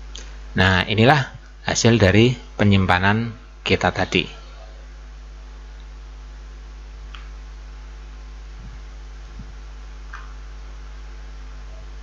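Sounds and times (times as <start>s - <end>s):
low electrical hum: 0.0s - 12.0s
soft thuds: 8.6s - 10.4s.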